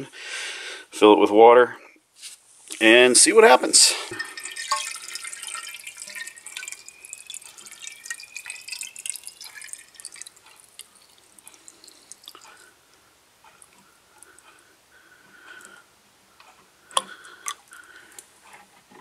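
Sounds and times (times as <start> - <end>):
water trickling into a pipe: 2.7 - 12.8
water dripping: 2.7 - 13.0.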